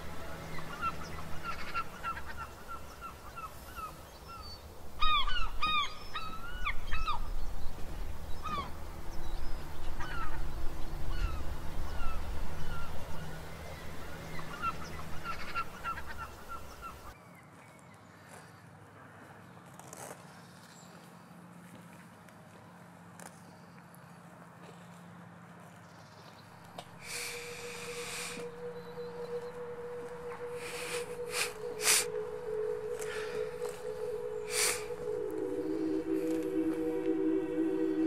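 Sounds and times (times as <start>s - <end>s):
low steady rumble: 0.0s - 17.2s, 26.9s - 38.0s
waterbirds calling: 0.0s - 17.2s.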